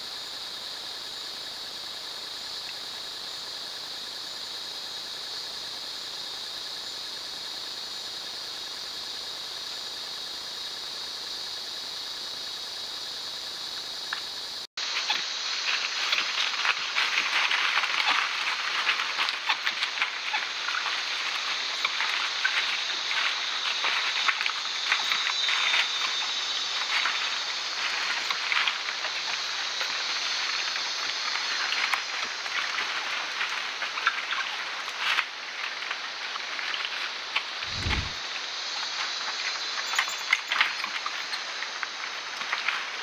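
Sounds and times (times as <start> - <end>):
insect hiss: 0.0 - 43.0
animals rustling through dry leaves: 14.8 - 43.0.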